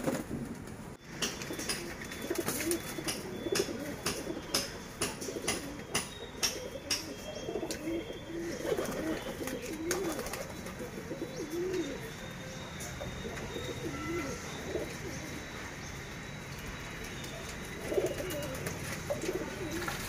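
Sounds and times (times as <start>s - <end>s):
pigeons cooing: 1.2s - 20.0s.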